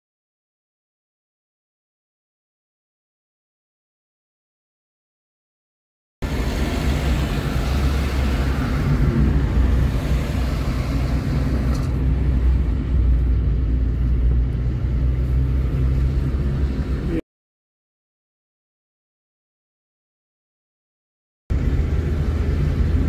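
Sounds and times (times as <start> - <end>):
car road and engine rumble: 6.2 - 17.2, 21.5 - 23.0.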